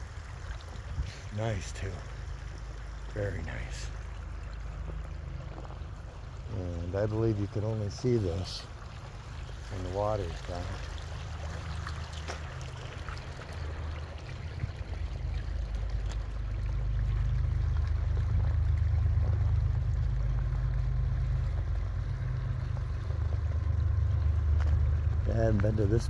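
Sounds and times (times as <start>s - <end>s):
water trickling into a pool: 0.0s - 26.0s
low rumble: 13.4s - 26.0s.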